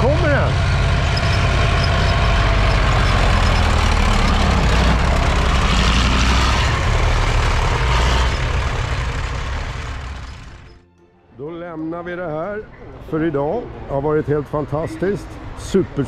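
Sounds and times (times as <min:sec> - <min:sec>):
tracked vehicle engine driving past: 0:00.0 - 0:10.9.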